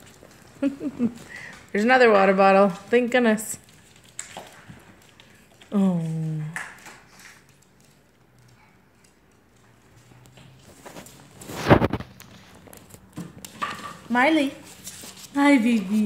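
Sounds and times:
puppy paws clicking on floor: 0.0s - 16.0s
loud rustling scrape: 10.7s - 12.6s.

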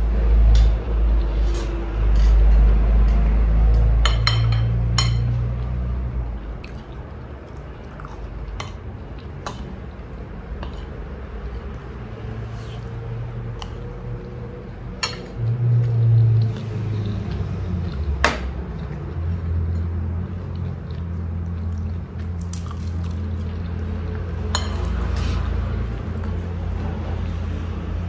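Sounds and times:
chewing: 6.3s - 27.7s
spoon clinking on plate: 24.5s - 24.9s.

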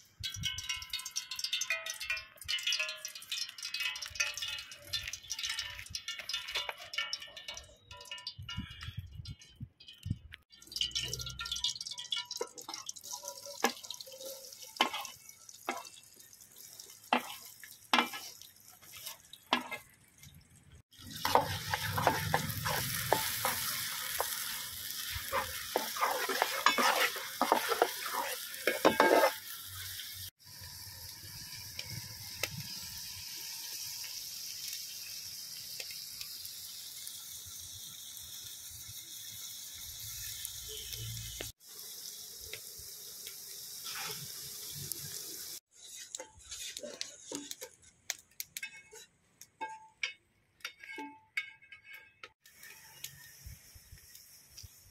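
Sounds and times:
onions sizzling in hot oil: 0.0s - 54.9s
metal ladle scraping pan: 0.8s - 16.0s, 16.8s - 20.0s, 21.0s - 30.3s, 45.7s - 47.9s, 48.6s - 53.0s.

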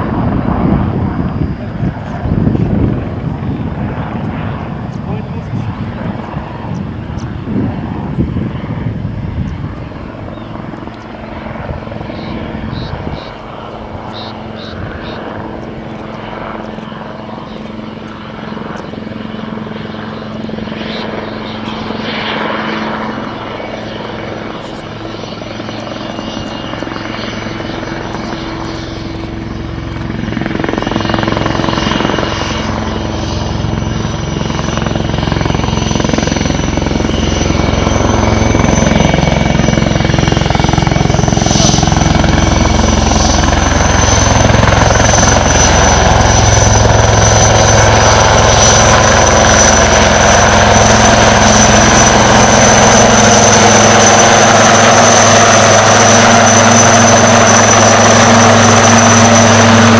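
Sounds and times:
helicopter flying past: 0.0s - 59.9s.

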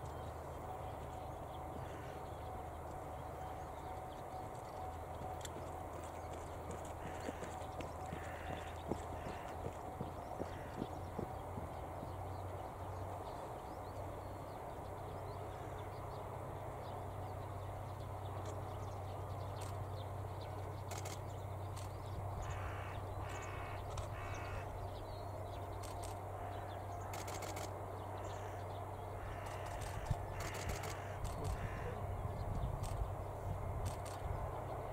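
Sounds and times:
steady low hum: 0.0s - 34.9s
crow cawing: 7.0s - 11.3s, 22.4s - 24.7s, 28.2s - 28.6s, 29.2s - 32.1s.

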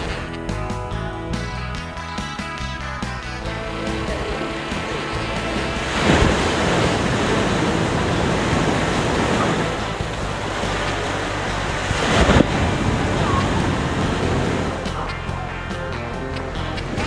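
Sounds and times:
ocean surf washing ashore: 3.5s - 15.2s
wave crashing: 3.5s - 15.6s.

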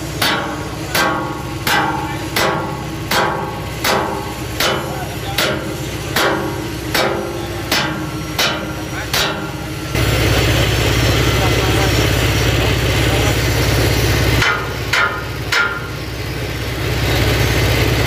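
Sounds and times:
hammer striking steel beams: 0.0s - 10.0s, 14.3s - 16.1s.

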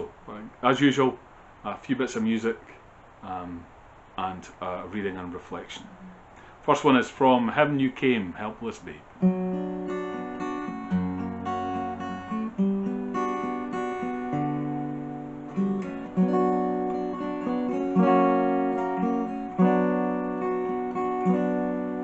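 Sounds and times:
acoustic guitar strumming chords: 8.4s - 22.0s.

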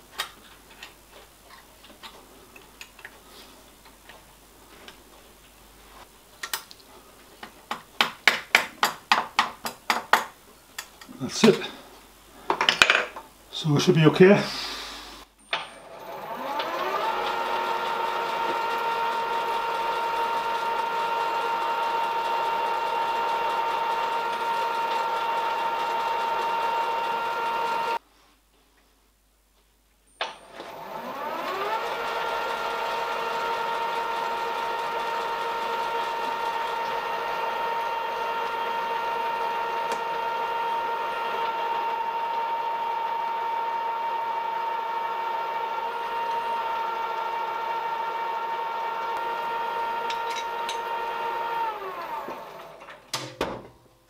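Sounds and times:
milling machine spindle whine: 15.8s - 28.0s, 30.5s - 52.9s.

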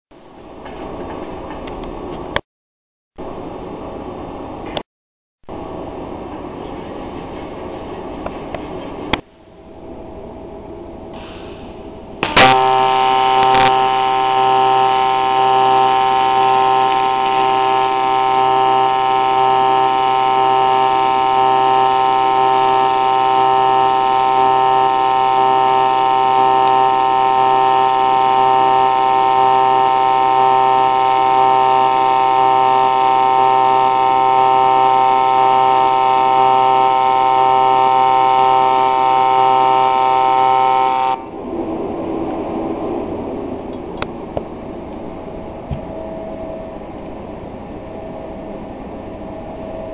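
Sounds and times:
welding arc buzzing: 12.2s - 41.3s.

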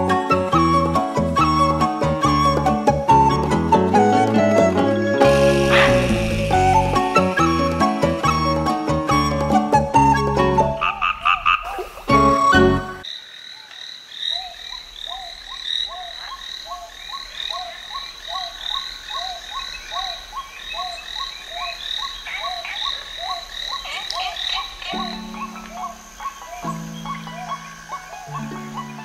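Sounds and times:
music: 0.0s - 11.0s, 12.1s - 13.0s, 24.8s - 29.0s
frogs croaking: 10.6s - 29.0s.

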